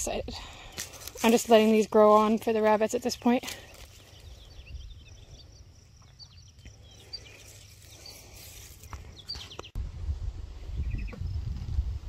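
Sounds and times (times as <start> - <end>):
small birds chirping: 0.0 - 9.8, 10.7 - 11.5
wind rumble on microphone: 4.3 - 5.5, 9.0 - 12.0.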